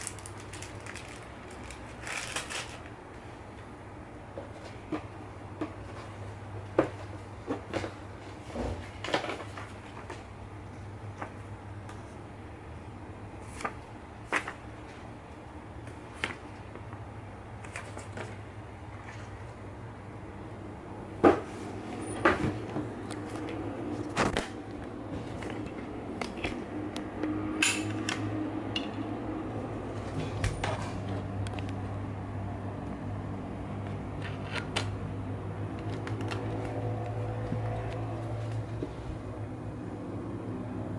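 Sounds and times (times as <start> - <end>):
paper and plastic bags crinkling: 0.0 - 3.0
steady low hum: 0.0 - 40.9.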